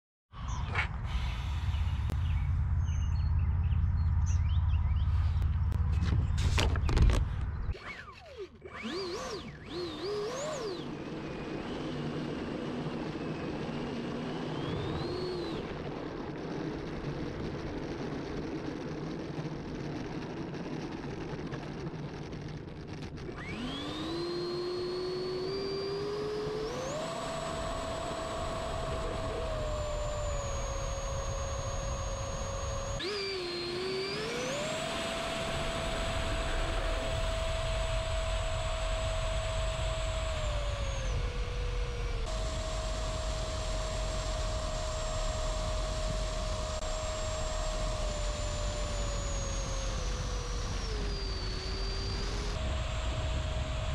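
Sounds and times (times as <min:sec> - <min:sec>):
electric ducted fan whine: 0:01.0 - 0:53.9.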